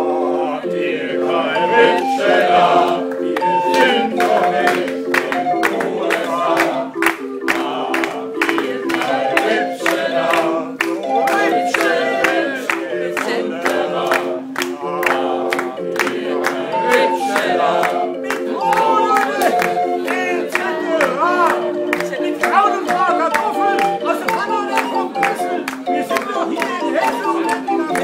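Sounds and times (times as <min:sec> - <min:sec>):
barrel organ playing: 0:00.0 - 0:28.0
man singing: 0:14.7 - 0:17.5, 0:18.2 - 0:28.0.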